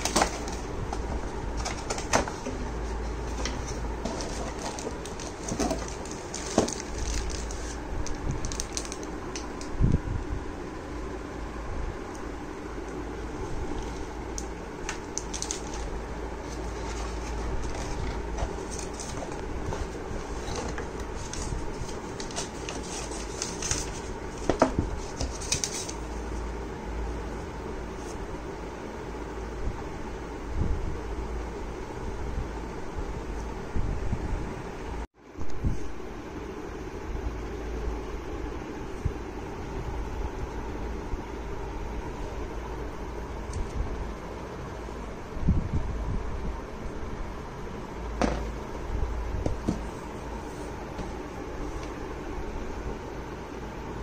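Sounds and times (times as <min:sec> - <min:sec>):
cardboard box rustling: 0:01.5 - 0:07.8, 0:08.4 - 0:09.1, 0:15.0 - 0:26.1
plastic wrap crinkling: 0:03.4 - 0:09.8, 0:14.8 - 0:26.2.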